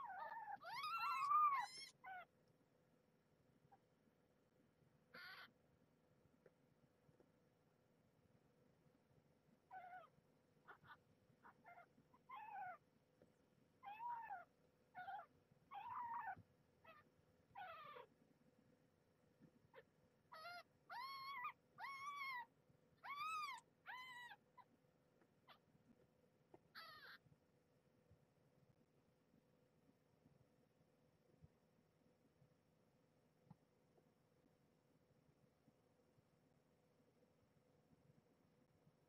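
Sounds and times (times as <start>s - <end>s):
kittens mewing and squealing: 0.0s - 2.3s, 5.2s - 5.6s, 9.7s - 10.1s, 10.7s - 12.8s, 13.8s - 18.1s, 19.8s - 24.7s, 26.8s - 27.2s.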